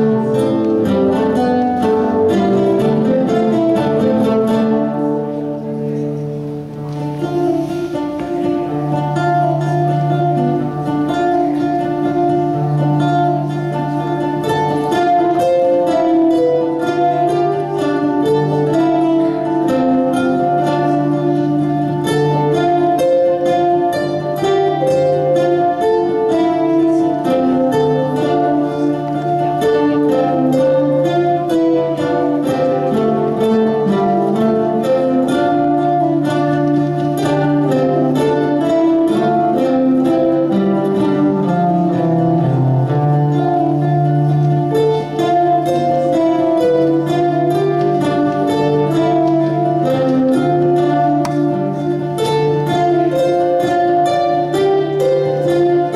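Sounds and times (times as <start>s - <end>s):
acoustic guitars playing: 0.0s - 55.9s.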